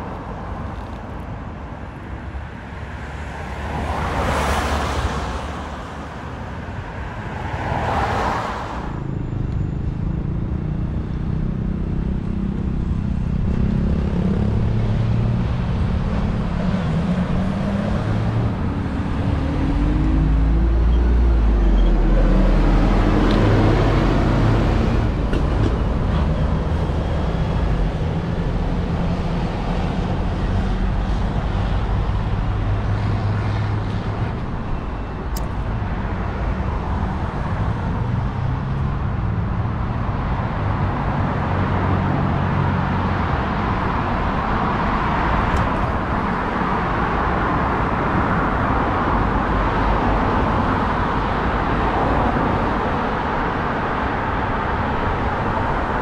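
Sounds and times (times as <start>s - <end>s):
vehicles passing: 0.0s - 56.0s.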